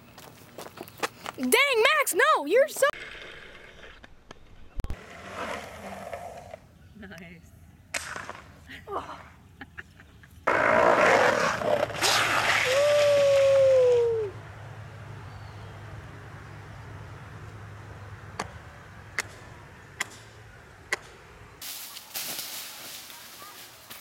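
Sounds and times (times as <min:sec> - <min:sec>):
longboard wheels sliding on asphalt: 0:02.9 - 0:06.8, 0:10.5 - 0:13.8.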